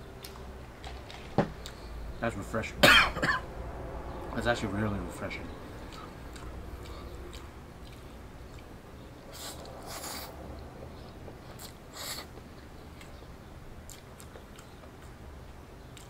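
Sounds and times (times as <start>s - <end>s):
person chewing noodles: 5.8s - 16.0s
hissing mouth sounds: 9.3s - 10.4s, 11.5s - 12.4s.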